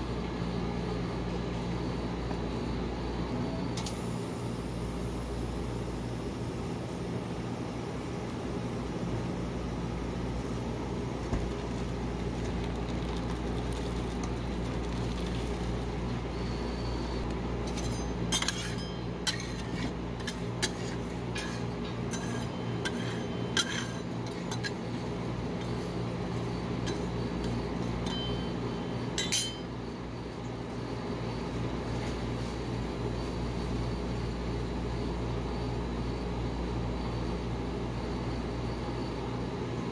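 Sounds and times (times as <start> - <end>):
refrigeration unit humming: 0.0 - 39.9
metal spatulas clinking on metal plate: 17.7 - 19.6, 29.2 - 29.6.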